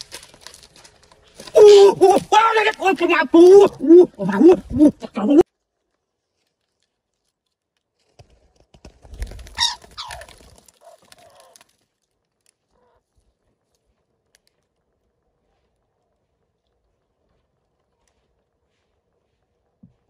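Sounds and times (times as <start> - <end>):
faint clicks: 10.9 - 18.3.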